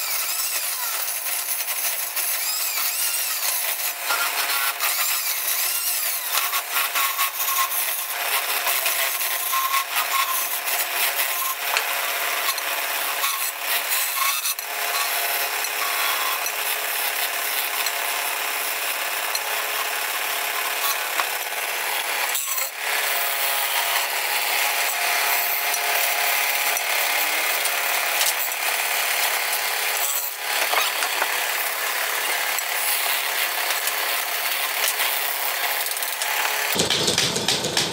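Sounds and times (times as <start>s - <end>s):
wood lathe spinning: 0.0s - 37.9s
chisel scraping wood: 30.0s - 31.5s.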